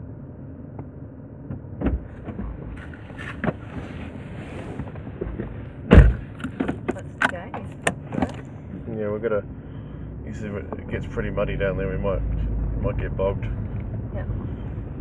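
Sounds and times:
car engine rumble: 0.0s - 15.0s
loud thump: 5.2s - 7.0s.

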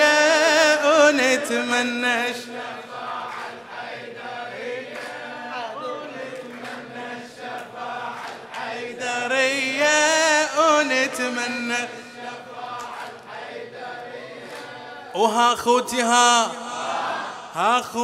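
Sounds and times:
man chanting: 0.0s - 2.8s, 9.0s - 12.2s, 15.2s - 18.0s
men singing in unison: 0.0s - 18.0s.

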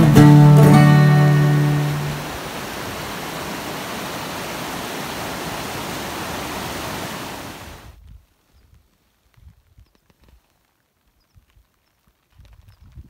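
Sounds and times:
acoustic guitar music: 0.0s - 2.4s
stream running over rocks: 0.0s - 8.0s.

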